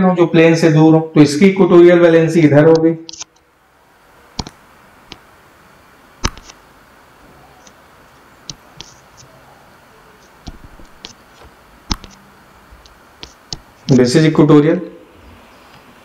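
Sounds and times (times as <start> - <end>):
low steady hiss: 0.0 - 16.0
stylus tapping on drawing tablet: 6.2 - 6.6, 10.4 - 12.2.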